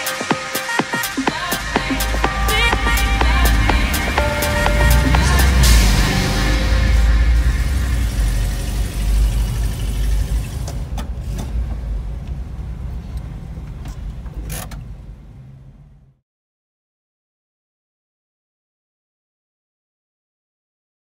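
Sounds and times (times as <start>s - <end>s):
vehicle engine running: 1.5s - 11.0s.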